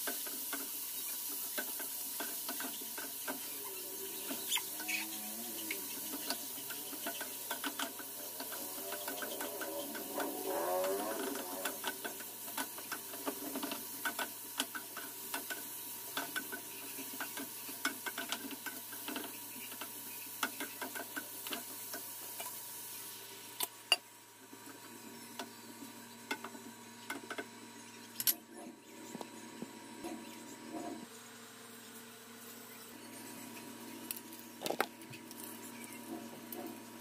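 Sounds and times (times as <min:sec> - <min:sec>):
utensils scraping frying pan: 0:00.5 - 0:22.0.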